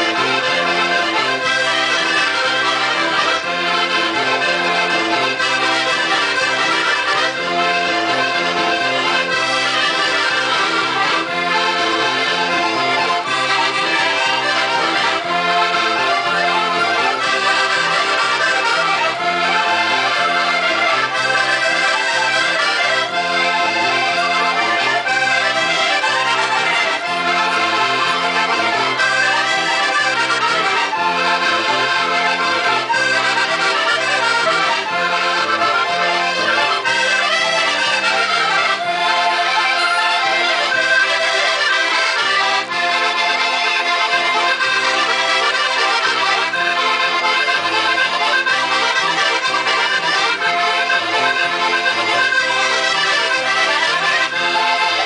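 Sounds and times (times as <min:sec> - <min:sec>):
accordions playing folk dance tune: 0:00.0 - 0:55.0.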